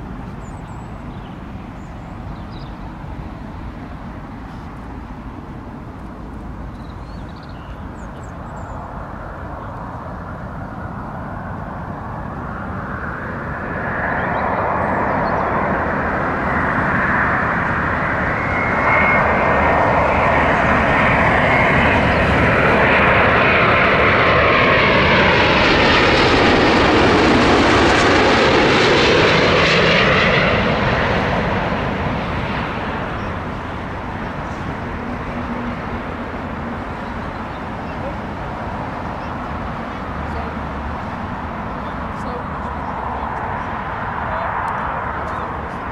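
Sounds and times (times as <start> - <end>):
airliner jet noise passing: 0.0 - 45.9.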